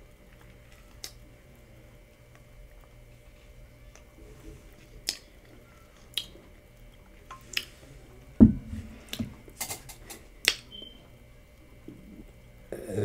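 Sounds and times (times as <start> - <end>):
lip smacks and mouth clicks: 5.0 - 5.3.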